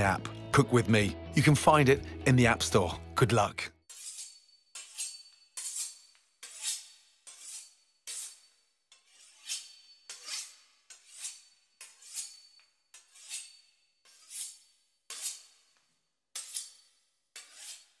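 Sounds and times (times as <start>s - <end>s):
quiet music: 0.0s - 3.7s
knife scraping swish: 3.9s - 15.8s, 16.4s - 18.0s.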